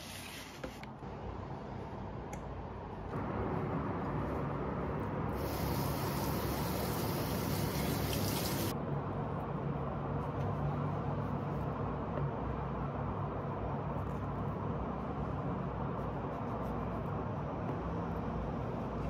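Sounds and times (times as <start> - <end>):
tap water running into bowl: 6.3 - 8.7.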